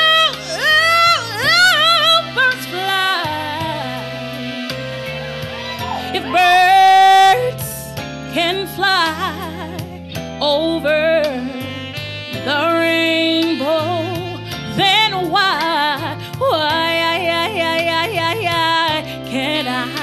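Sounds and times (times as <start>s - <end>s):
woman singing into a microphone: 0.0s - 5.2s, 5.8s - 20.0s
held low instrumental chords: 0.0s - 16.6s.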